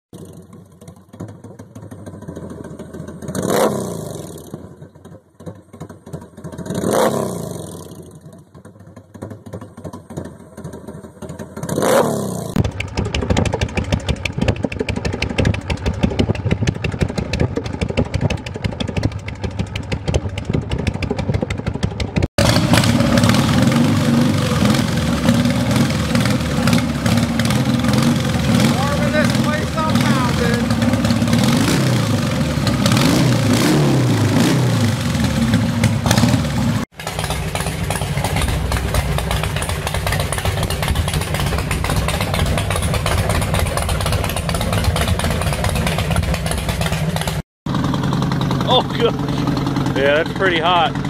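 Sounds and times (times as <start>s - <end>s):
motorcycle engine revving: 0.1s - 51.0s
motorcycle exhaust afterfire: 0.1s - 51.0s
motorcycle engine idling: 0.2s - 51.0s.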